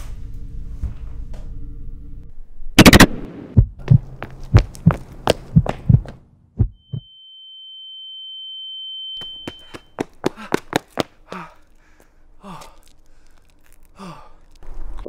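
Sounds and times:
high steady ringing tone: 0:06.8 - 0:10.0
man gasping and groaning: 0:10.3 - 0:14.6.

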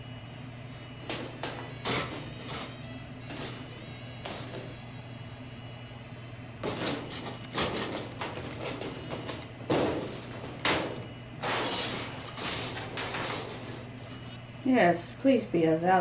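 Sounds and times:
metal clanks and scrapes: 0:00.7 - 0:04.7, 0:06.6 - 0:14.4.

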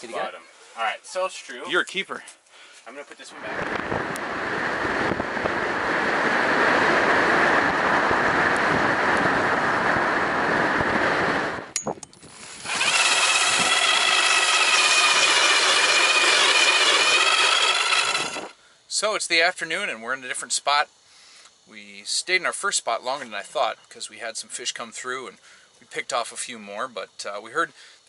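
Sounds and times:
road and wind noise: 0:03.3 - 0:18.5
electric ice auger whining: 0:12.2 - 0:18.6.

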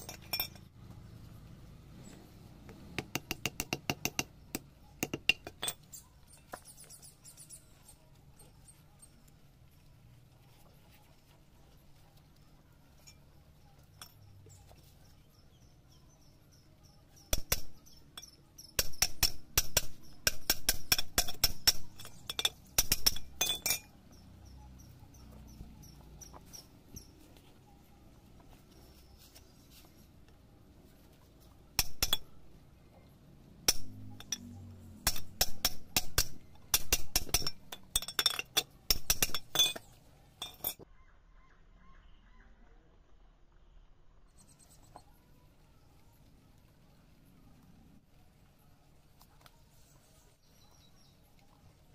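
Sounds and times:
steel pipe tapping metal: 0:17.3 - 0:23.9, 0:31.8 - 0:32.3, 0:33.7 - 0:34.4, 0:35.0 - 0:40.8.

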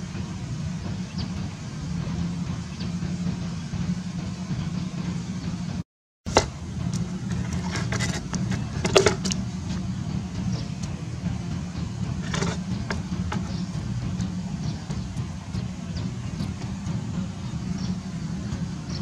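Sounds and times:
steady low hum: 0:00.0 - 0:19.0
scrapes and knocks on sandy ground: 0:06.3 - 0:09.8, 0:12.1 - 0:15.2.

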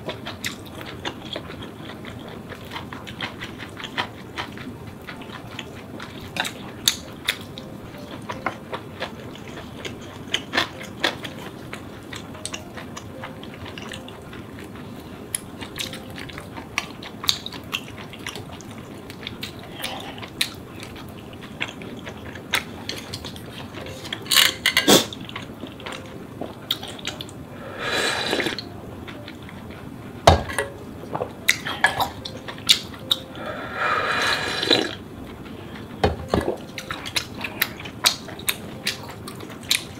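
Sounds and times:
chewing: 0:00.0 - 0:29.9, 0:31.0 - 0:39.9
noisy slurp: 0:27.6 - 0:28.7, 0:33.4 - 0:35.0.

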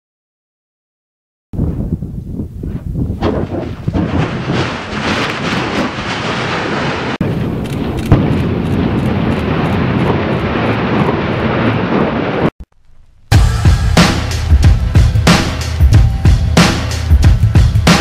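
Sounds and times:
volcano roaring: 0:03.2 - 0:12.5
explosive bang: 0:07.2 - 0:09.6.

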